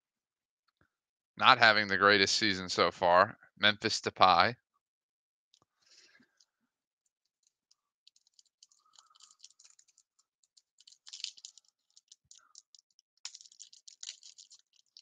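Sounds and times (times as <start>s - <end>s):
foil pack crinkling: 8.1s - 15.0s.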